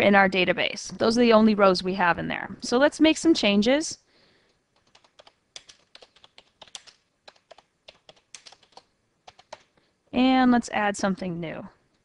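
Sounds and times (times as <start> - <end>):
typing on computer keyboard: 4.8 - 9.8.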